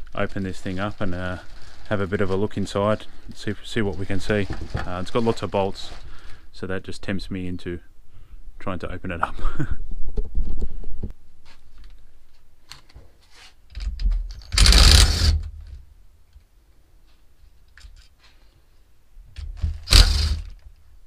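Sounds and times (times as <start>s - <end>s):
cordless impact wrench running: 14.6s - 15.4s, 19.8s - 20.5s.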